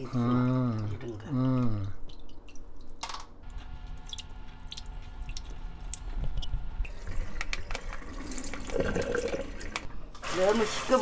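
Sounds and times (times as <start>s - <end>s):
water splashing in a sink: 3.9s - 11.0s.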